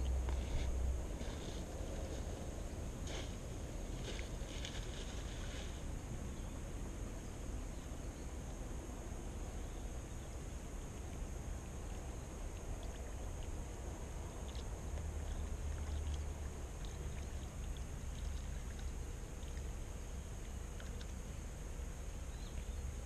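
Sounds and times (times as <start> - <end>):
faint high hiss: 0.0 - 23.0
low outdoor rumble: 0.0 - 23.0
faint small ticks: 11.1 - 13.6, 14.3 - 21.4.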